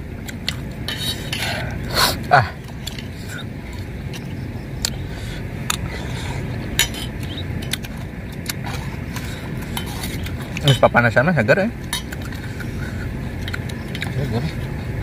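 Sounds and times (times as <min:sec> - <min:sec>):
low background noise: 0:00.0 - 0:15.0
spoons clinking on metal bowls: 0:10.5 - 0:11.1, 0:11.9 - 0:12.6.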